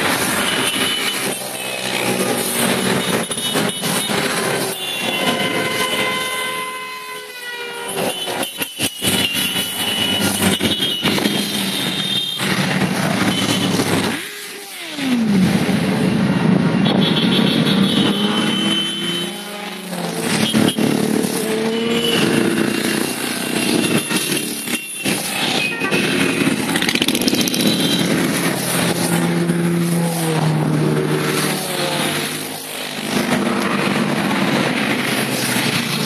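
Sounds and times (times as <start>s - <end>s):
motorcycles riding past: 25.4s - 36.0s.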